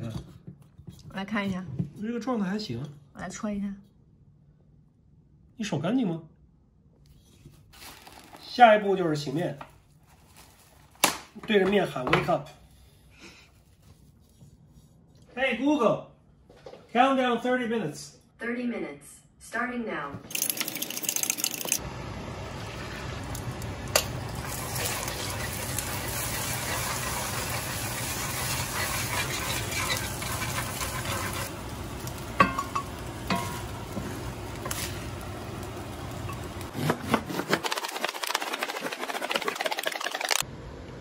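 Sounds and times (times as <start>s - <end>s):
eggs sizzling in skillet: 20.3s - 36.7s.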